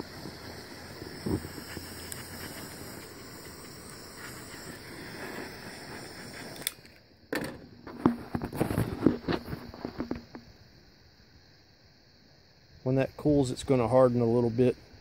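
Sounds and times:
heat gun blowing: 0.0 - 6.8.

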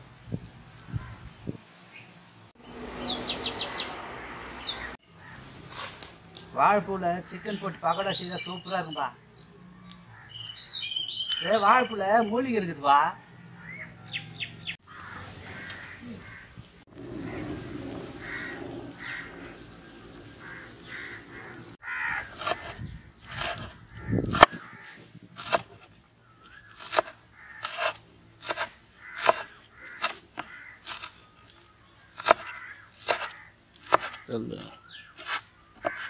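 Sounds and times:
crows cawing: 5.1 - 5.5, 10.1 - 10.5, 14.8 - 22.8, 23.9 - 25.1, 26.2 - 31.1, 32.0 - 36.0
knife chopping on wooden board: 25.4 - 25.8, 26.8 - 31.1, 32.2 - 34.2, 35.2 - 36.0.

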